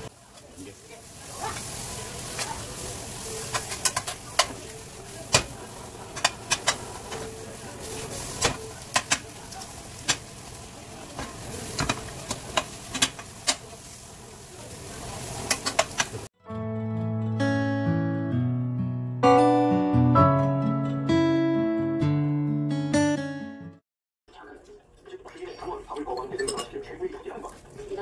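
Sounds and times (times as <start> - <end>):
eggs sizzling in a frying pan: 0.0 - 16.3
spoon scraping and knocking a pan: 5.3 - 7.4.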